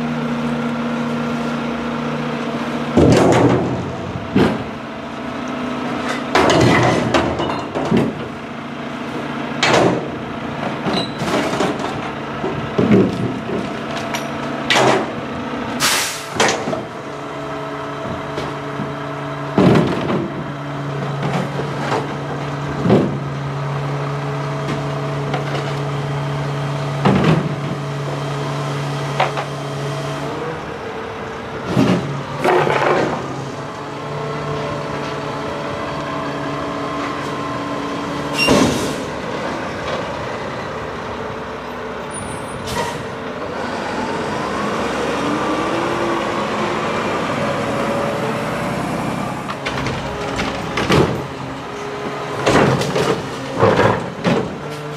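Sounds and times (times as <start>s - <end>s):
recyclables banging against metal: 6.0s - 8.4s, 49.5s - 54.9s
air brake hiss: 15.8s - 16.4s, 38.4s - 39.1s, 42.6s - 43.1s.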